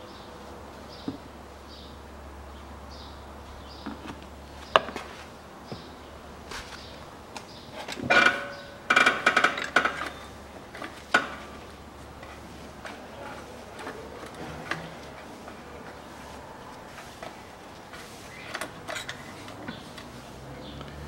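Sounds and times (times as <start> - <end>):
knocks and clinks of tools: 7.9 - 11.7.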